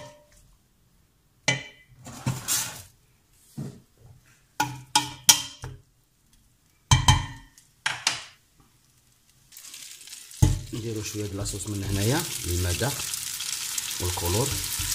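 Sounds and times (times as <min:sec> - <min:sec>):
pot scraping: 0:02.0 - 0:02.9.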